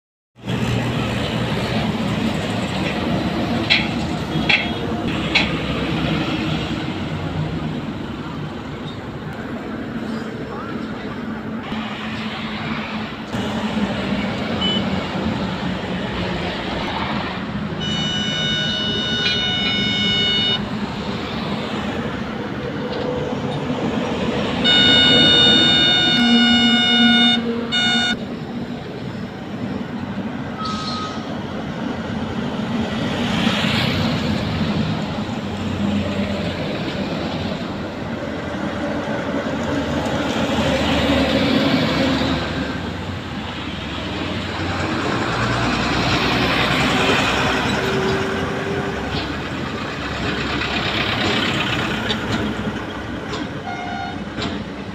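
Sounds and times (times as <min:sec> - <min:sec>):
heavy highway traffic: 0:00.4 - 0:54.9
vehicle horn: 0:17.8 - 0:20.6, 0:24.6 - 0:28.2, 0:53.6 - 0:54.2.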